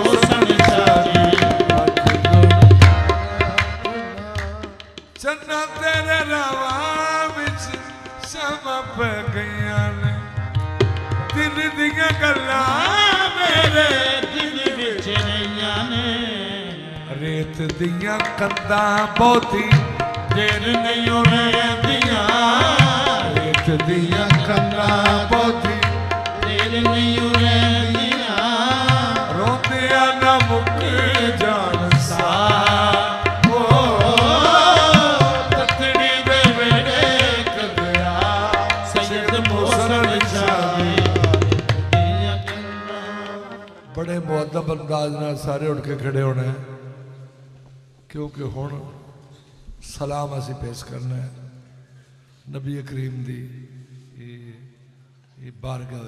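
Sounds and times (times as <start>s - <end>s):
hand drum beat: 0.0s - 3.5s
man singing ornamented lines: 0.0s - 10.2s, 11.4s - 45.0s
harmonium: 0.0s - 46.4s.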